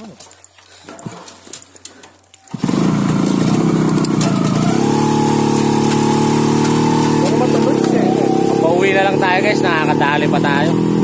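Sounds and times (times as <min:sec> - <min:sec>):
motorcycle engine starting and running: 0:02.4 - 0:11.0.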